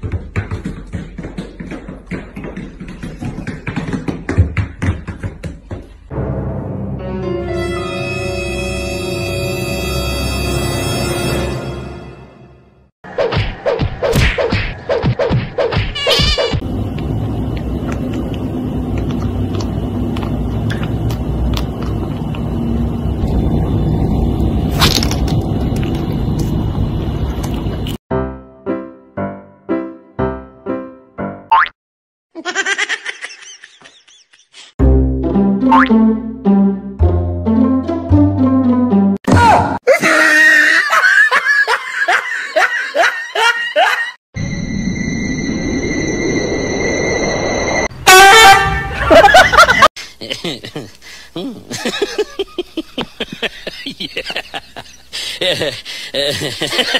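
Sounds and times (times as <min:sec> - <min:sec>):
low rumbling noise: 0:16.6 - 0:28.0, 0:44.4 - 0:48.1
person laughing hard: 0:32.4 - 0:34.7, 0:39.8 - 0:44.2, 0:48.9 - 0:56.9.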